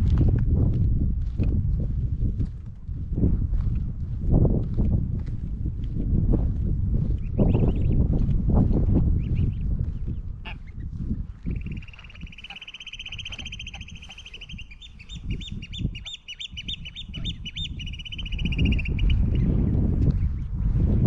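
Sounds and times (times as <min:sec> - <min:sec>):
bird trilling: 0:11.5 - 0:19.4
whistled bird notes: 0:11.6 - 0:19.4.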